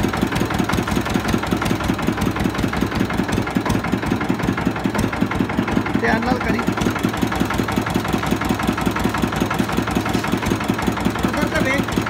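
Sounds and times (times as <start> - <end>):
juice crusher rhythmic mechanical beat: 0.0 - 12.0.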